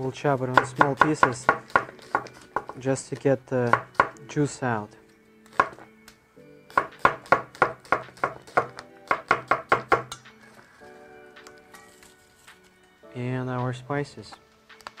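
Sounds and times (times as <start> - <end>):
soft background music: 0.0 - 15.0
knife chopping on plastic board: 0.5 - 2.8, 3.6 - 4.2, 5.5 - 5.8, 6.7 - 10.2.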